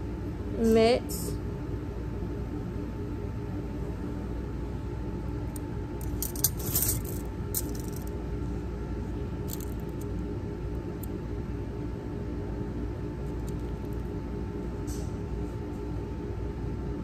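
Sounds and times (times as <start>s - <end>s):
steady low hum: 0.0s - 17.0s
metal instruments clinking: 6.0s - 8.1s, 9.5s - 10.1s.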